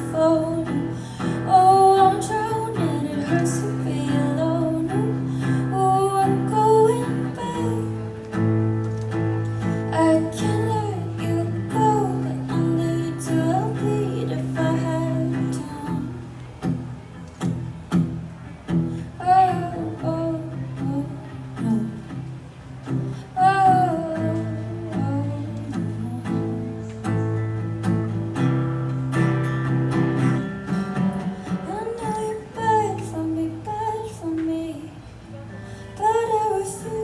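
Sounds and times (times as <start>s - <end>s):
woman singing: 0.0s - 8.4s, 9.6s - 16.2s, 19.1s - 22.2s, 23.1s - 26.9s, 31.4s - 37.0s
acoustic guitar strummed and picked: 0.0s - 37.0s.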